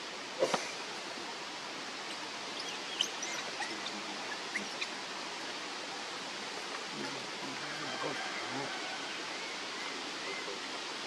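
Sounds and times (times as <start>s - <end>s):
outdoor ambient hiss: 0.0s - 11.0s.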